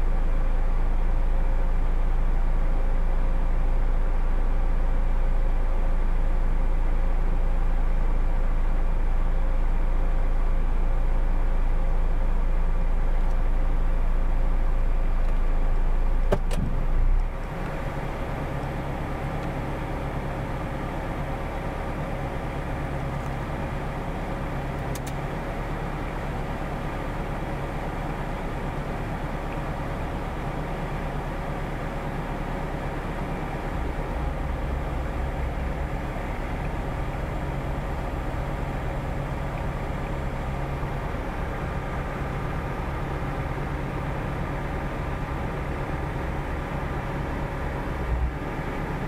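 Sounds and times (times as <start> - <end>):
vehicle engine idling: 0.0 - 49.0
click: 15.2 - 15.5, 24.8 - 25.2.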